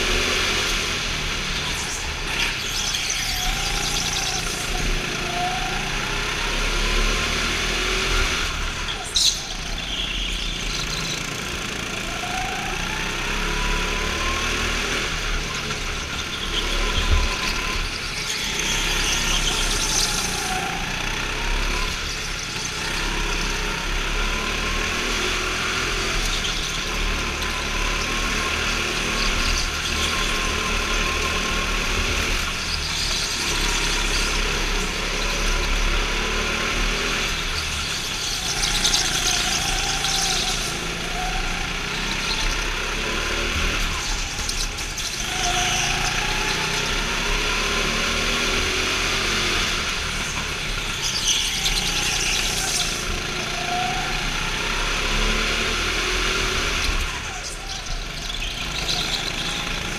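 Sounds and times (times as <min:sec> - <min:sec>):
go-kart engines revving: 0:00.0 - 0:59.9.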